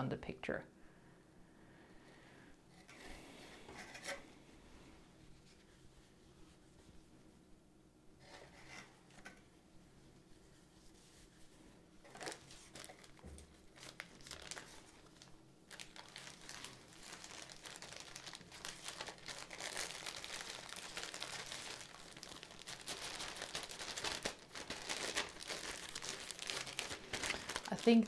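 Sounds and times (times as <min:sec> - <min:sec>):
plastic bag crinkling: 0:12.1 - 0:28.0.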